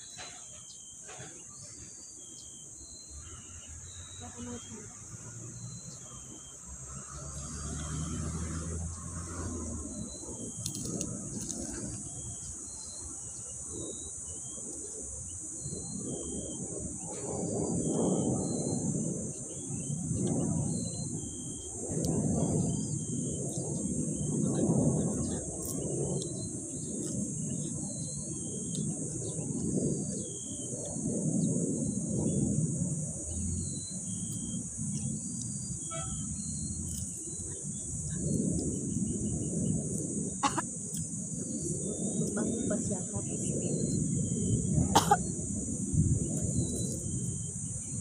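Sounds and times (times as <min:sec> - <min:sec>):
bird chirps: 0:00.0 - 0:07.5, 0:33.3 - 0:39.4
insect drone: 0:00.0 - 0:48.0.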